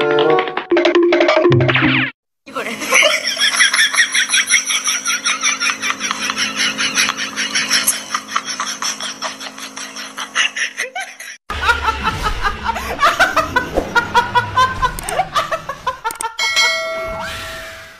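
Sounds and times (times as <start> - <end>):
woman laughing hysterically: 2.6 - 16.4
bright ding sound effect: 16.4 - 17.9.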